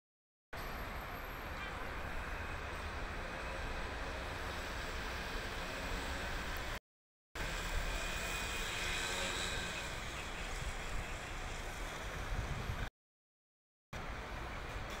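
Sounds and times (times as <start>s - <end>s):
city background noise: 0.6s - 6.8s, 7.4s - 12.9s, 14.0s - 15.0s
wind buffeting microphone: 10.0s - 12.9s.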